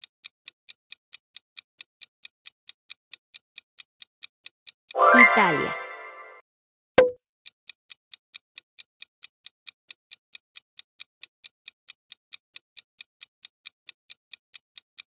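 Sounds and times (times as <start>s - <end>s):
fast clock ticking: 0.0s - 4.9s, 7.9s - 15.0s.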